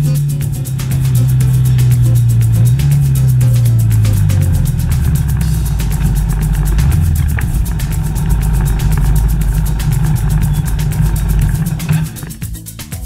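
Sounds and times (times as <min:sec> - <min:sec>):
low wind rumble: 0:00.0 - 0:12.5
motorcycle engine running: 0:00.0 - 0:13.0.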